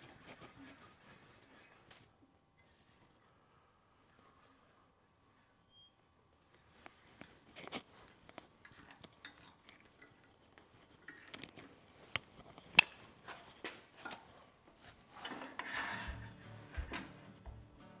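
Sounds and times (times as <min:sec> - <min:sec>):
scraping rub: 0:14.8 - 0:17.4.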